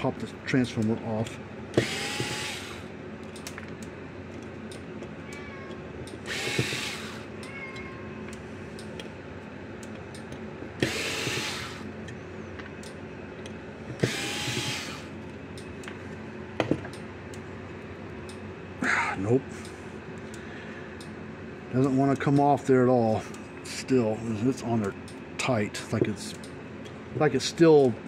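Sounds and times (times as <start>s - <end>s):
electric screwdriver whirring: 1.8s - 2.9s, 6.2s - 7.3s, 10.8s - 11.8s, 14.0s - 15.1s.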